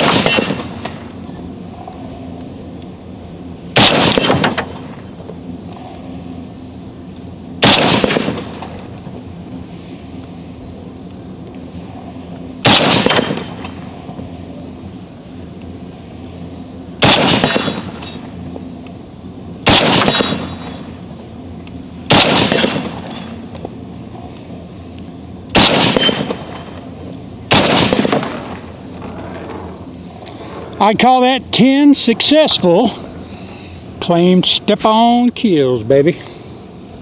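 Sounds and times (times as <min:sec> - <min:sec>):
rifle shots: 0:00.0 - 0:01.0, 0:03.7 - 0:04.9, 0:07.6 - 0:08.7, 0:12.6 - 0:13.7, 0:17.0 - 0:18.2, 0:19.6 - 0:20.8, 0:22.1 - 0:23.3, 0:25.5 - 0:26.6, 0:27.5 - 0:28.6.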